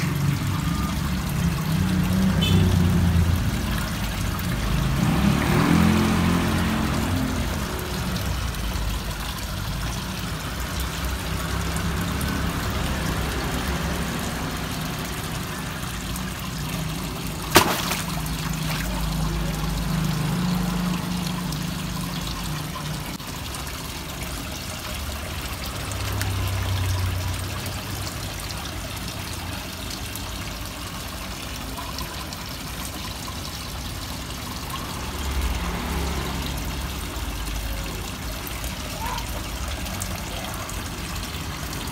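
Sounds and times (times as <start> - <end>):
water splashing into pond: 0.0 - 41.9.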